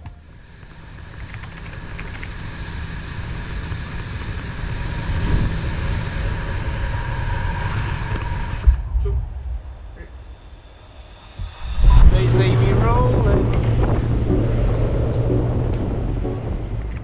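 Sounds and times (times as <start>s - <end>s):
wind buffeting microphone: 1.2s - 17.0s
boat motor whine: 10.1s - 17.0s.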